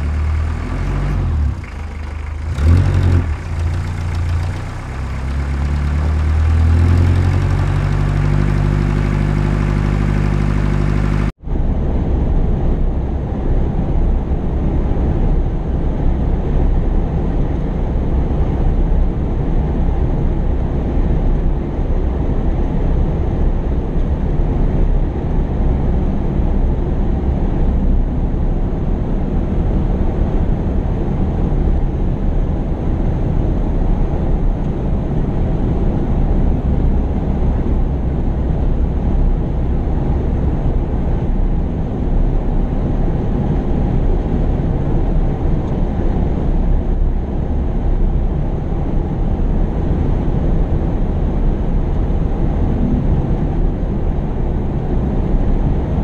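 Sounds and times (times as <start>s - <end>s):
heavy machine engine revving: 0.0s - 11.3s
rough low engine rumble: 0.0s - 11.4s.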